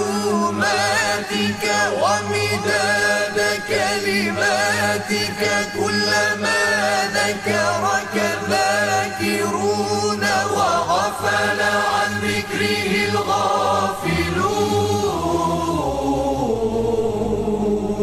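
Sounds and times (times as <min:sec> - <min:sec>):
male choir chanting: 0:00.0 - 0:18.0
low held drone: 0:12.6 - 0:18.0.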